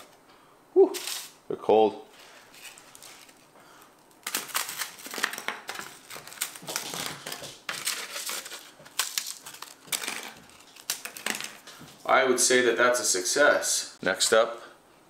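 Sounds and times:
dry bread crunching: 2.4 - 11.7.

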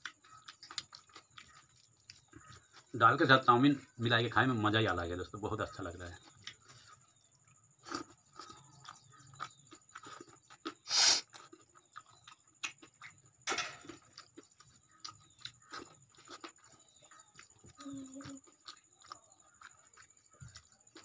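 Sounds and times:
chewing and mouth clicks: 0.0 - 3.0, 6.0 - 21.0
loud slurp: 10.9 - 11.3.

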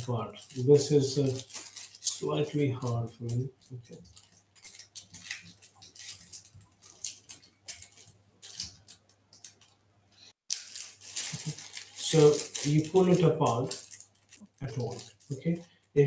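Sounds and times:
plastic wrapper crinkling: 0.0 - 9.8, 10.5 - 16.0
low electrical hum: 0.0 - 16.0.

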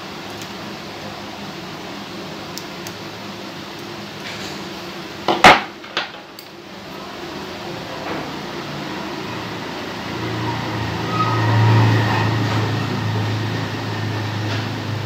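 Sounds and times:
steady background hum: 0.0 - 11.2.

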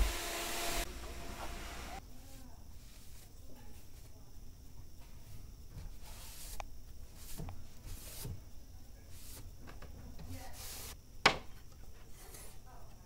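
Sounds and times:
cloth rag wiping wooden boards: 5.9 - 8.4.

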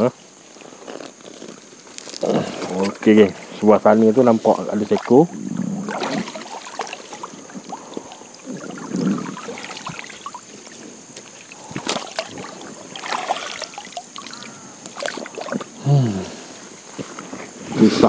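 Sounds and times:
river water splashing: 2.7 - 15.8.

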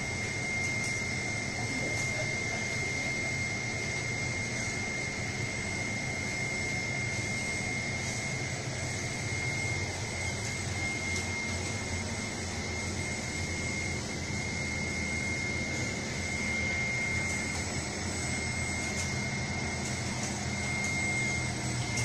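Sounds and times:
machine mechanical drone: 0.0 - 22.0
high whine: 6.4 - 22.0.

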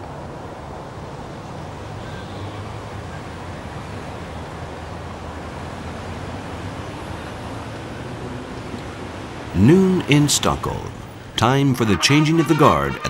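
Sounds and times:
wind and water rushing: 0.0 - 13.0
ship engine droning: 8.2 - 13.0.

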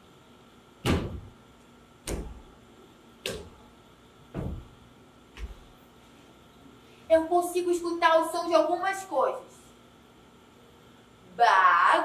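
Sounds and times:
bare feet stomping on wooden floor: 0.8 - 1.3, 4.3 - 4.8.

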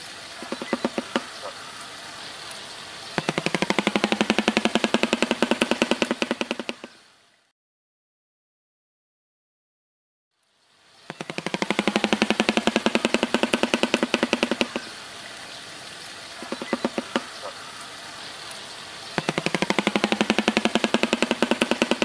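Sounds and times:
bird clattering its bill: 0.4 - 1.6, 3.2 - 6.9, 11.1 - 14.9, 16.4 - 17.6, 19.2 - 22.0.

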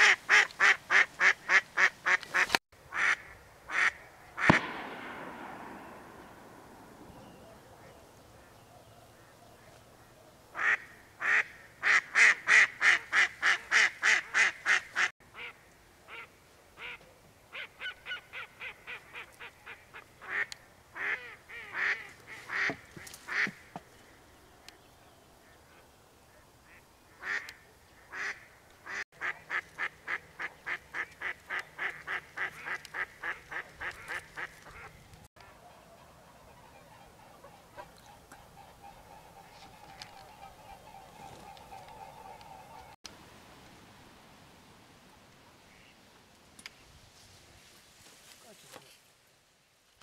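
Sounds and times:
duck quacking: 0.0 - 4.0, 10.6 - 17.0, 26.7 - 34.9.

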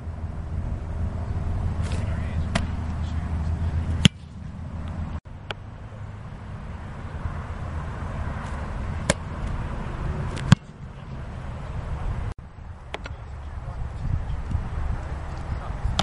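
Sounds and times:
wind rumble: 0.0 - 16.0
football kicked thump: 1.8 - 2.8.

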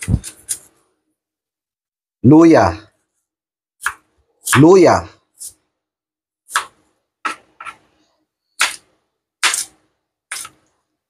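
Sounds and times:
knife cutting on a cutting board: 0.0 - 0.7, 3.8 - 4.7, 6.5 - 7.9, 8.6 - 10.7.

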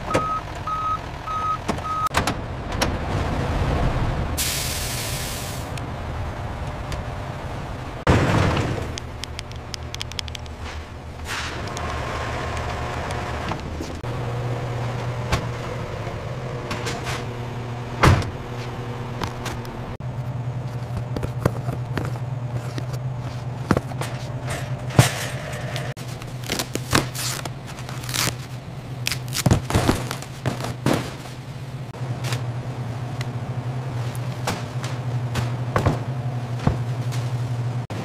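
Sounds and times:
truck engine running: 0.0 - 38.0.

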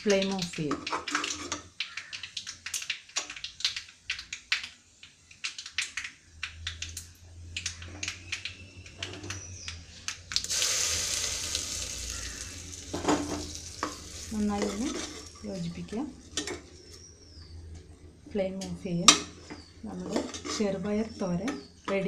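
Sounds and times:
spoon stirring and scraping a pot: 0.7 - 1.7, 10.7 - 17.2, 19.2 - 21.6
hot oil sizzling loudly: 10.3 - 17.1.

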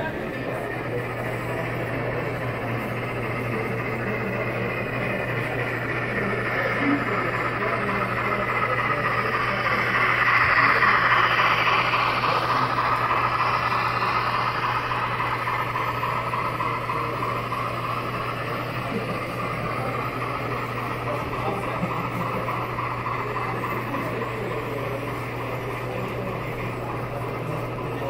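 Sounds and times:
model train wheels rolling: 0.0 - 28.0
low hum: 0.1 - 25.8.

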